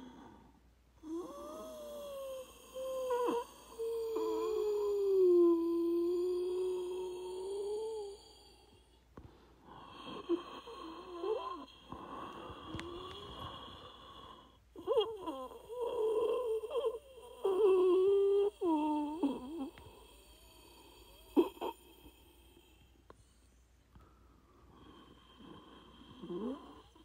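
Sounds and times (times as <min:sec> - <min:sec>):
person wheezing breaths: 0:00.0 - 0:23.4.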